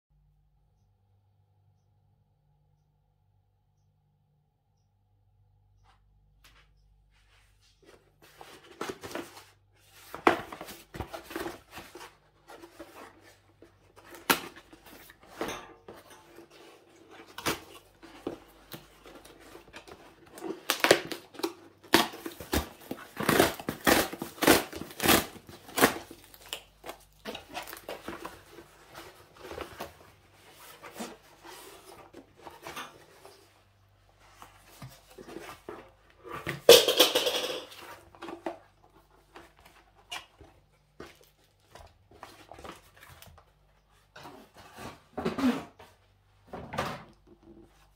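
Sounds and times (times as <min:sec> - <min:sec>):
packaging rustling: 0:17.2 - 0:33.4.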